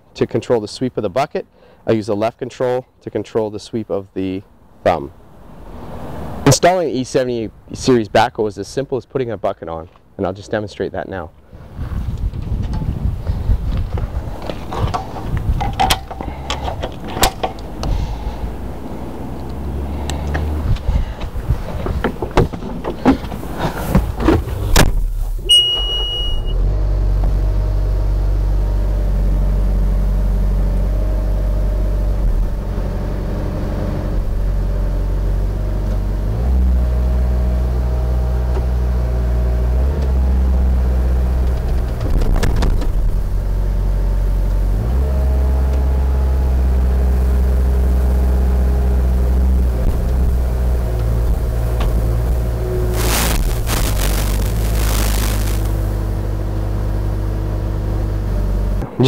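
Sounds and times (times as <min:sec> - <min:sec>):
diesel engine starting and running: 0:12.3 - 0:59.0
knocks of climbing into cab: 0:21.2 - 0:25.0
short high beep: 0:25.5 - 0:26.6.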